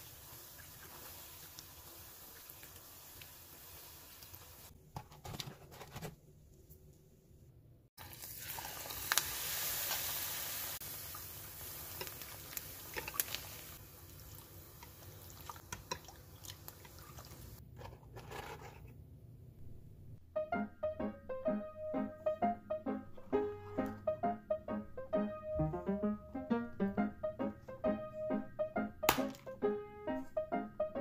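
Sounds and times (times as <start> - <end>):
batter deep-frying in hot oil: 0.0 - 4.8, 8.0 - 17.6.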